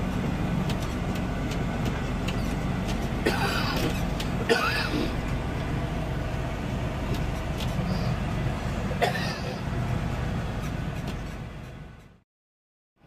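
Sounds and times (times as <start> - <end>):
tractor diesel engine running: 0.0 - 12.2
person clearing throat: 3.2 - 5.2, 9.0 - 9.6.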